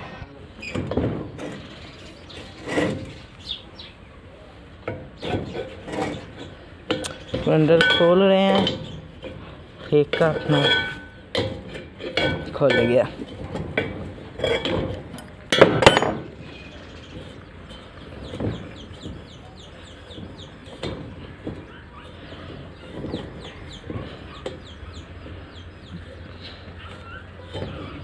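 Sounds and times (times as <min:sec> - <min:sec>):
loud metallic clatter: 0:10.0 - 0:19.1
chickens clucking: 0:16.4 - 0:28.0.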